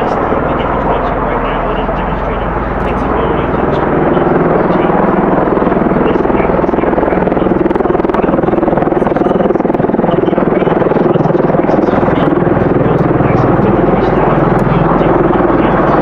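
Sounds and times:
tiltrotor aircraft rotors beating: 0:00.0 - 0:16.0
turboshaft engines droning: 0:00.0 - 0:16.0.

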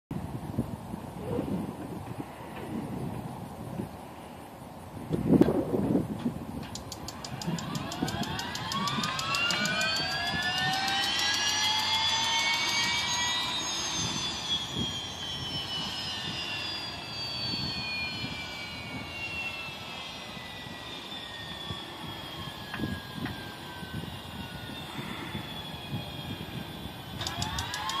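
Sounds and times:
turbine engine whine: 0:00.1 - 0:28.0
igniter ticking: 0:06.6 - 0:11.5, 0:27.2 - 0:28.0.

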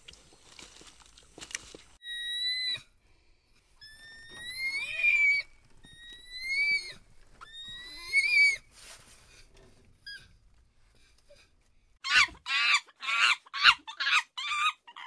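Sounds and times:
animal high-pitched calls: 0:02.0 - 0:02.9, 0:03.8 - 0:08.7, 0:12.0 - 0:15.0.

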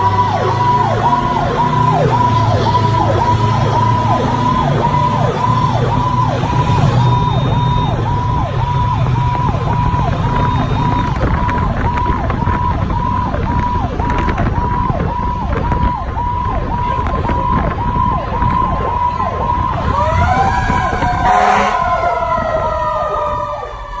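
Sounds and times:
fire truck siren: 0:00.0 - 0:24.0
rising and falling siren tone: 0:00.0 - 0:24.0
truck engine rumble: 0:00.0 - 0:24.0
short loud horn blast: 0:21.2 - 0:21.8.

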